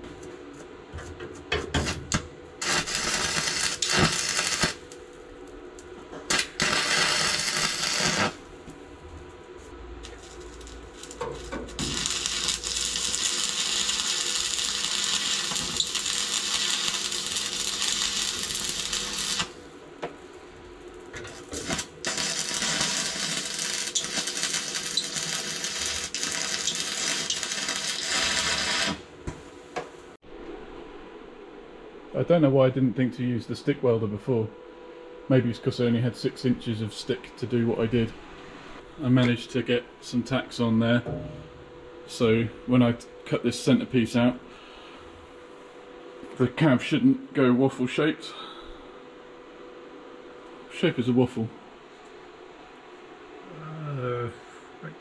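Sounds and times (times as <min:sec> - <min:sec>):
arc welder crackling: 0:01.5 - 0:30.0.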